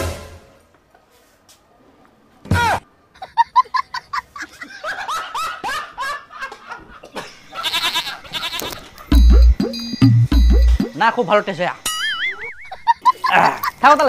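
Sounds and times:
high bleating laughter-like calls: 7.5 - 9.0.

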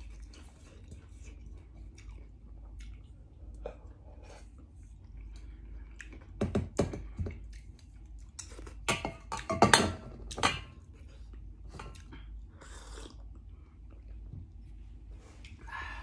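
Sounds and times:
person chewing: 0.0 - 6.4, 7.1 - 8.9, 11.0 - 14.2.

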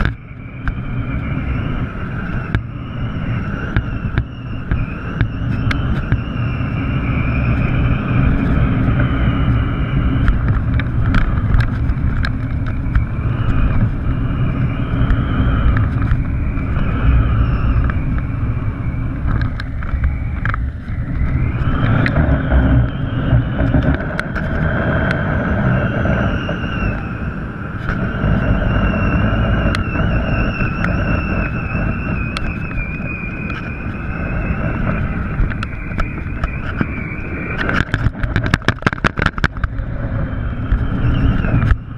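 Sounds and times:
faint wavering whistle tones: 0.0 - 10.9, 11.7 - 41.9
wind buffeting microphone: 0.0 - 41.9
scattered clicks: 10.2 - 14.1, 19.2 - 23.0, 29.6 - 40.0.

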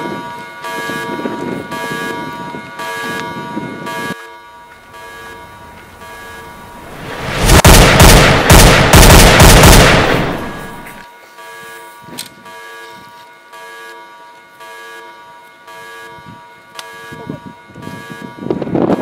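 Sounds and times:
rapid rifle gunshots: 7.3 - 10.9.

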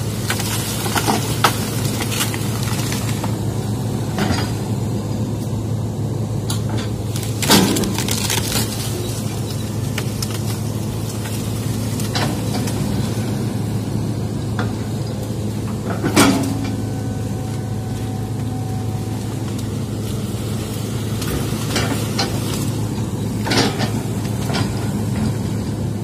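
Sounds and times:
excavator diesel engine running: 0.0 - 26.0
branches snapping: 6.5 - 13.0.

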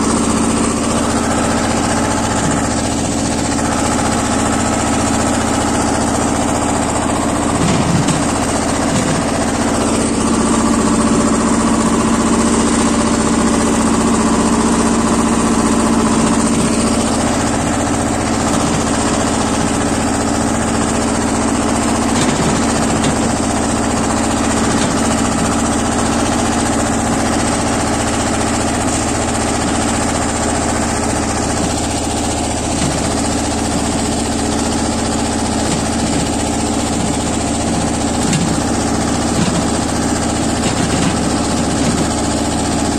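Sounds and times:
tractor diesel engine running: 0.0 - 42.9.

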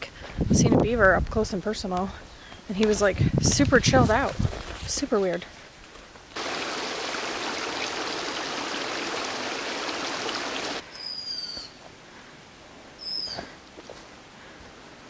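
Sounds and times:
stream running over stones: 6.4 - 10.8.

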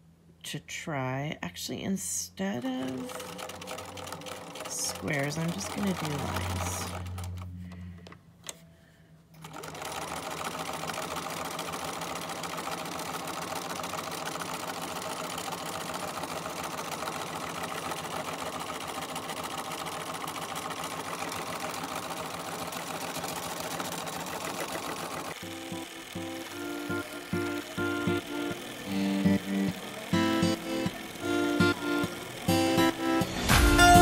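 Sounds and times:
sewing machine stitching: 2.6 - 7.6, 9.4 - 34.0
music: 2.8 - 7.5, 25.4 - 34.0.

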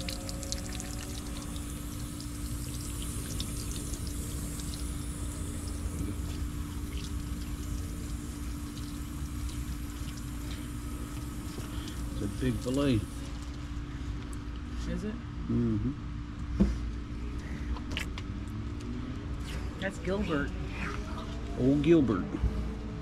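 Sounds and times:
hose spraying water on metal: 0.0 - 13.3
water splashing and trickling: 0.0 - 13.6
steady hum: 0.0 - 23.0.

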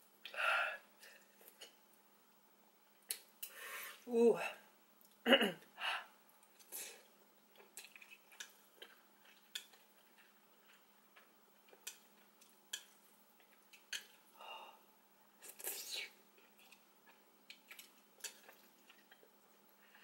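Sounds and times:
chewing noodles: 7.5 - 14.4, 15.4 - 20.0.

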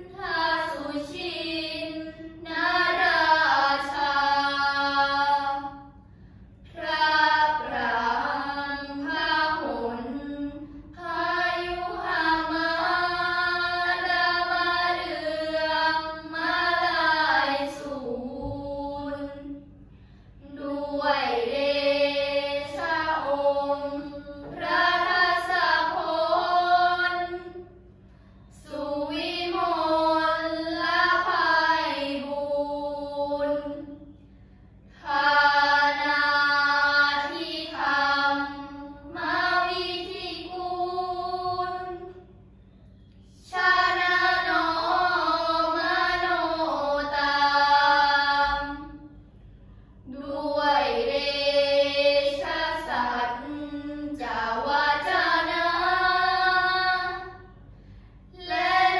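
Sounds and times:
girls chanting prayers in unison: 0.0 - 58.9.

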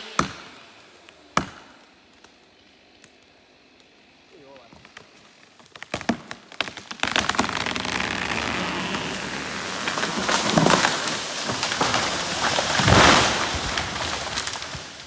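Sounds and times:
wood cracking: 0.1 - 15.0
tree crashing to ground: 4.7 - 15.0.

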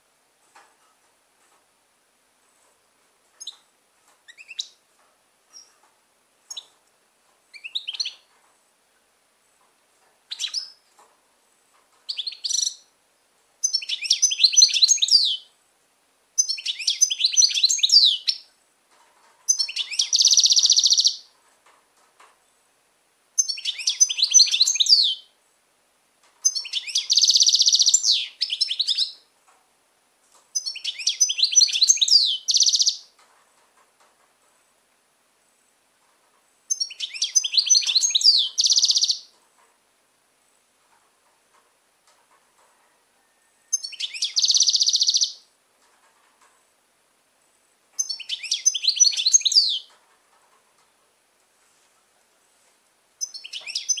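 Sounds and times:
goldfinch singing: 13.6 - 15.5, 16.4 - 18.4, 19.5 - 21.3, 23.4 - 25.3, 26.4 - 29.2, 30.6 - 33.1, 36.7 - 39.3, 43.7 - 45.4, 48.0 - 49.9, 53.2 - 54.0.

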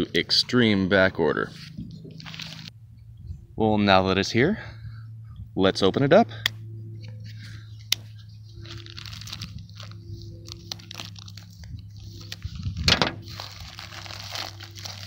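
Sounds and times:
plastic crinkling and rustling: 1.6 - 2.7, 8.1 - 15.0.

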